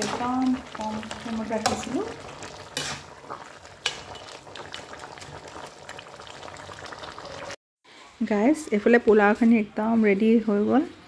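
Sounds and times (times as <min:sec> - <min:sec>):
curry bubbling and sizzling: 0:00.0 - 0:07.6
spoon scraping pan: 0:01.1 - 0:04.4.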